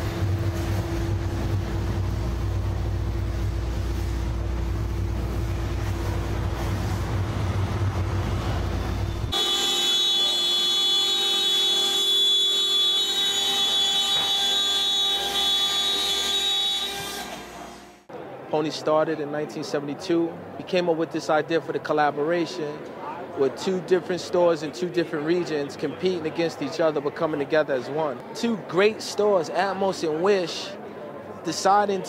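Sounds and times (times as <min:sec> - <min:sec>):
low engine rumble: 0:00.0 - 0:09.4
router spindle high-pitched whine: 0:09.3 - 0:18.0.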